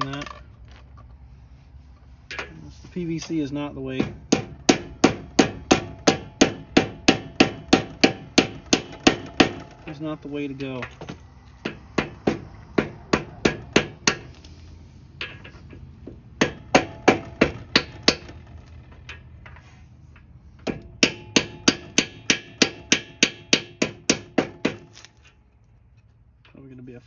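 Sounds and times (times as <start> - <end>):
hammer striking metal pipe: 2.3 - 2.6, 4.0 - 9.7, 11.6 - 14.3, 16.4 - 18.5, 20.6 - 24.8.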